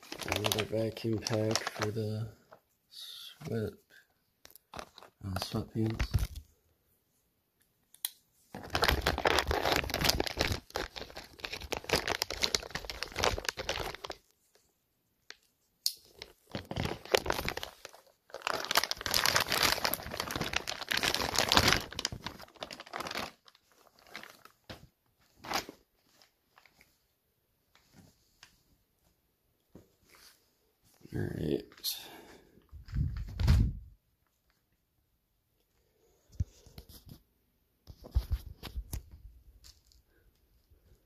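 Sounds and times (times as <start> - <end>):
plastic bag crinkling: 0.0 - 2.2, 4.6 - 6.5, 8.6 - 14.3, 16.0 - 24.7, 25.3 - 26.9.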